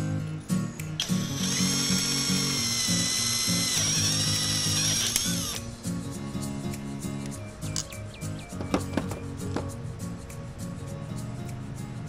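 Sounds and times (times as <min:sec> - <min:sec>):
power tool motor whining: 0:01.0 - 0:05.7
background music with bass beat: 0:05.6 - 0:12.0.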